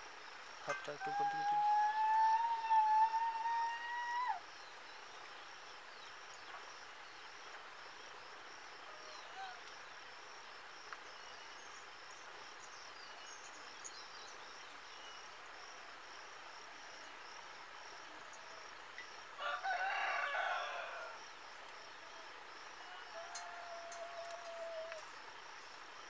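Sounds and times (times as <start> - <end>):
rooster crowing: 19.4 - 21.2, 22.8 - 25.0.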